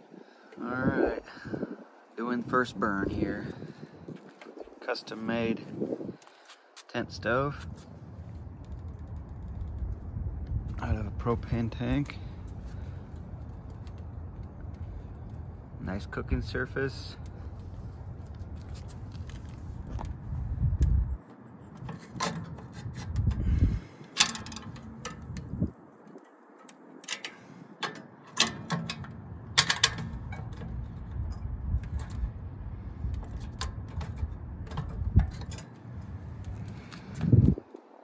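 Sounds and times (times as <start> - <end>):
metal clicks and scrapes: 20.8 - 37.6.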